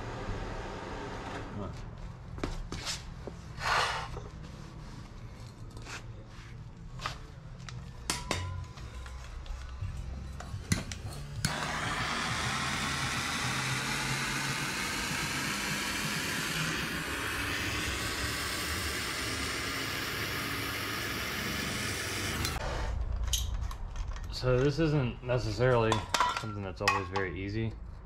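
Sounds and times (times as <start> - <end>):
propane torch hissing: 11.4 - 22.6.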